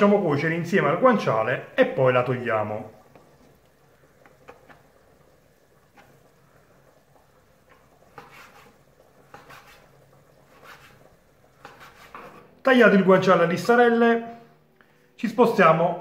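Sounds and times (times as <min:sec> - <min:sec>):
knife cutting on wooden board: 0:08.1 - 0:12.4.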